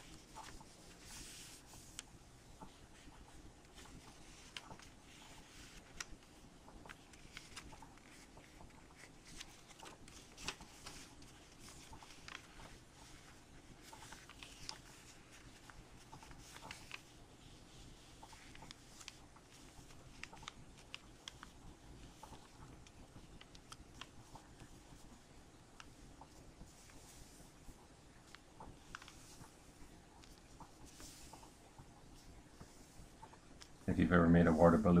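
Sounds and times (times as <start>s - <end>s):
paper being folded: 0.0s - 33.8s.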